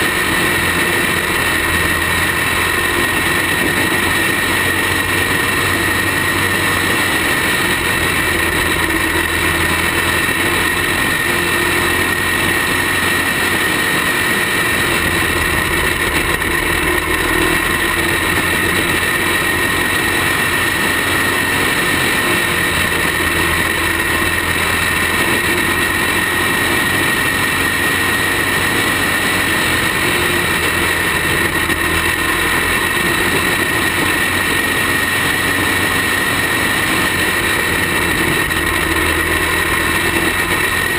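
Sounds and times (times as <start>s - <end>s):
kart engine running: 0.0s - 40.9s.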